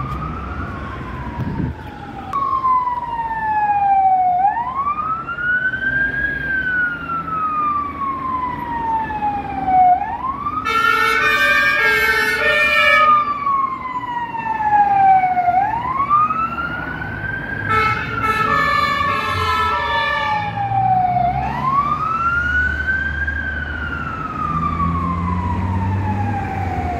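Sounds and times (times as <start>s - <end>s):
fire engine wail siren: 0.0s - 26.9s
two-tone air horn blasts: 17.7s - 20.4s.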